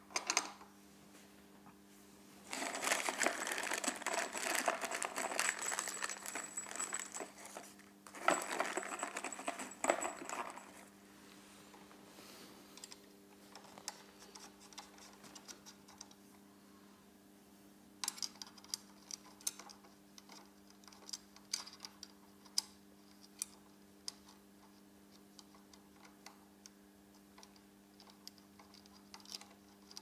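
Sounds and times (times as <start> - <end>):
packaging crinkling: 2.5 - 10.8.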